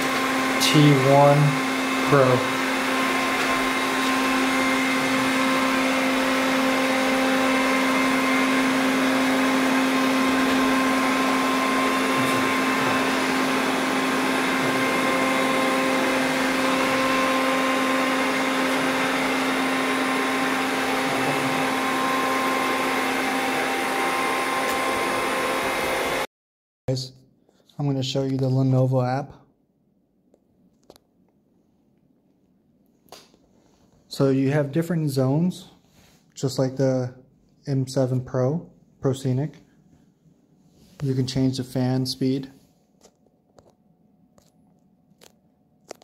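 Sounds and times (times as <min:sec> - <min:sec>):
robot vacuum cleaner running: 0:00.0 - 0:26.3.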